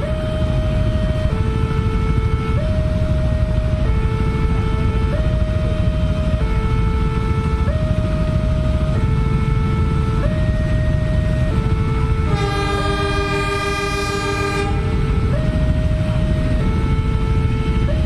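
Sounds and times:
locomotive horn blast: 12.2 - 15.4.

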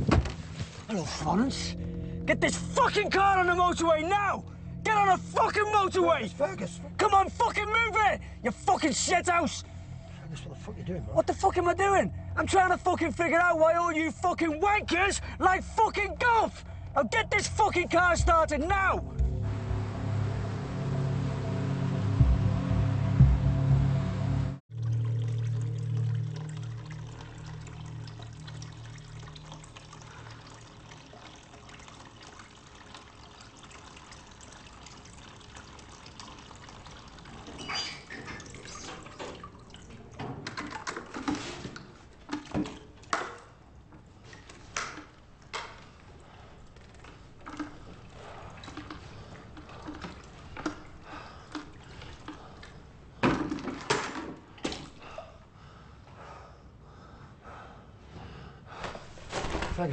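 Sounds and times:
tap water running into bucket: 24.7 - 54.9.

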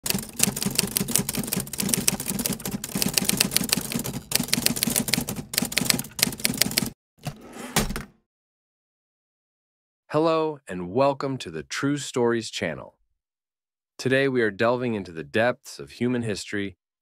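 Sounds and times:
typewriter keys clacking: 0.0 - 6.9.

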